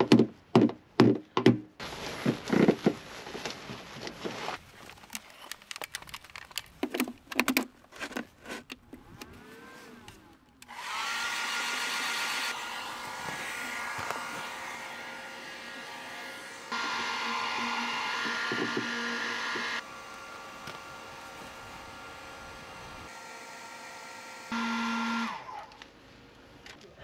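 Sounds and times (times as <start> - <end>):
hair dryer whirring: 10.6 - 25.6.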